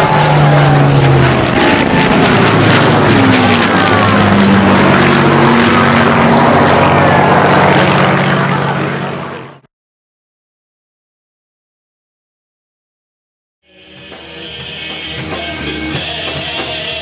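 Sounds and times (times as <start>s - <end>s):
propeller planes flying past: 0.0s - 9.7s.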